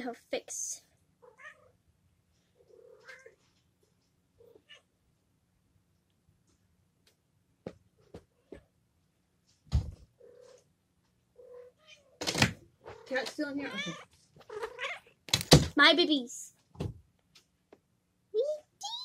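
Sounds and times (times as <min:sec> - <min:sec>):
cat meowing: 0:01.2 - 0:01.7, 0:02.7 - 0:03.4, 0:13.6 - 0:15.1.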